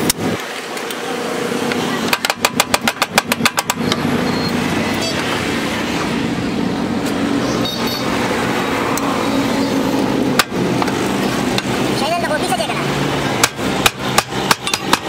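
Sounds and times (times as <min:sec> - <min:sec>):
rapid metal knocks: 0:02.1 - 0:04.0, 0:13.4 - 0:15.0.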